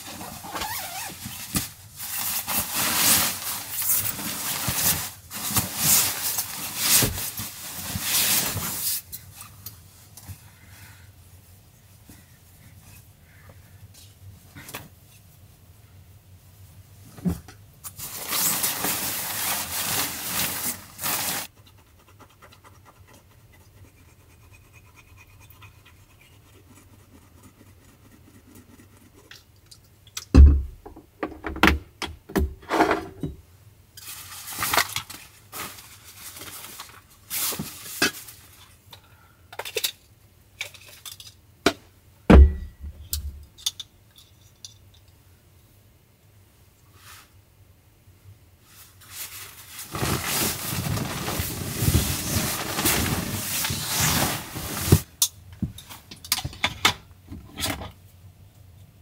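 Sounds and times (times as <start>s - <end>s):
fabric rustling: 18.0s - 21.5s, 48.6s - 55.1s.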